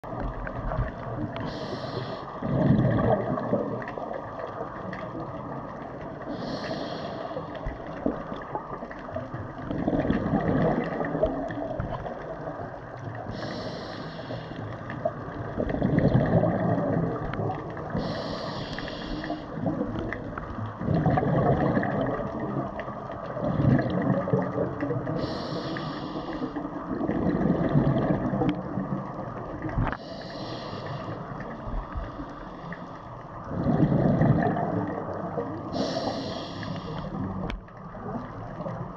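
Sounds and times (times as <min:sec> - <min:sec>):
exhaled air bubbling: 0:00.0 - 0:38.9
regulator inhale hiss: 0:01.4 - 0:02.4, 0:06.2 - 0:07.9, 0:13.2 - 0:15.0, 0:17.9 - 0:19.6, 0:25.2 - 0:26.7, 0:29.9 - 0:33.1, 0:35.6 - 0:37.3.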